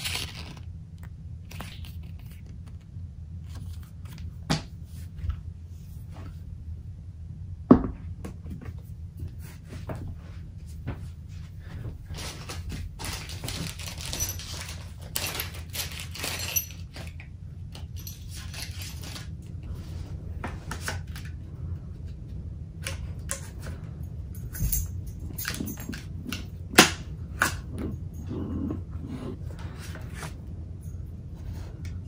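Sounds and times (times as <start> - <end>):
handling rustling and scrapes: 0.0 - 0.7, 1.4 - 6.5, 8.7 - 22.2, 27.3 - 32.0
steady low hum: 0.0 - 32.0.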